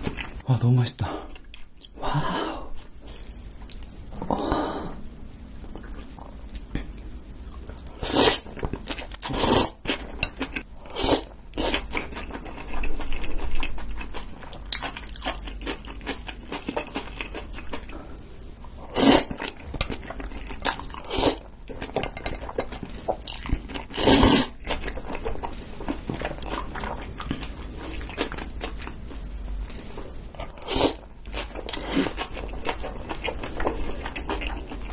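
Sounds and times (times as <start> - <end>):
wet chewing: 7.6 - 18.1, 19.2 - 34.9
slurping noodles: 9.2 - 9.8, 18.9 - 19.4, 23.8 - 24.6, 30.6 - 31.0.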